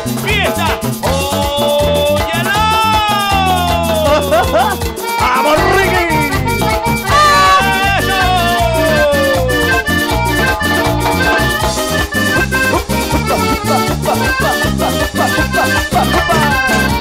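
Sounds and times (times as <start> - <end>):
bass line: 0.0 - 17.0
percussion beat: 0.0 - 17.0
lead melody with pitch slides: 4.1 - 17.0.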